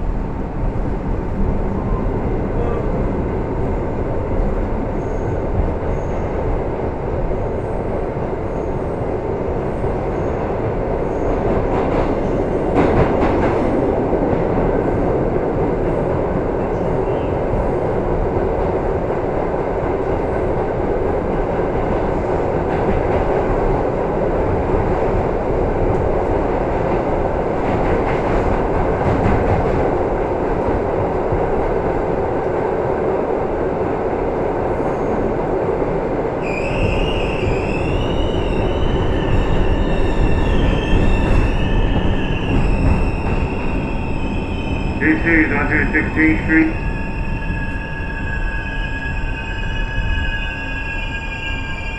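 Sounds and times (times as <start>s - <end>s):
subway wheels rumbling on rails: 0.0s - 51.9s
wheel and brake squeal: 36.4s - 43.3s.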